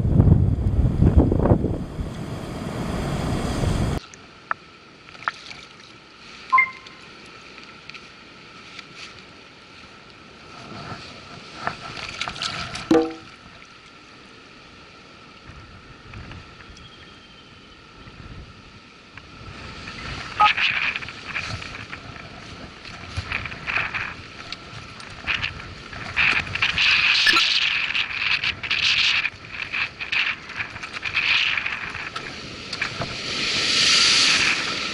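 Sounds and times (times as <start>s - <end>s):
wind buffeting microphone: 0.0s - 4.0s, 19.4s - 34.9s
sea noise: 0.2s - 5.1s, 5.7s - 7.5s, 17.4s - 34.9s.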